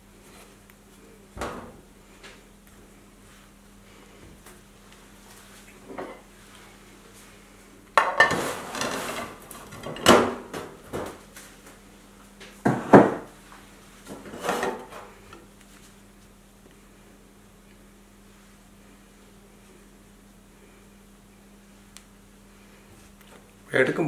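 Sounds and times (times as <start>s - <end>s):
ceramic dishes clattering on steel: 8.0s - 8.4s.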